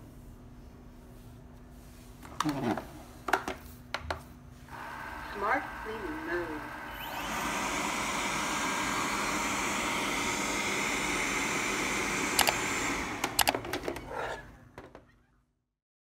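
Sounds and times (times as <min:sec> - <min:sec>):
robot vacuum motor whirring: 0:04.7 - 0:14.5.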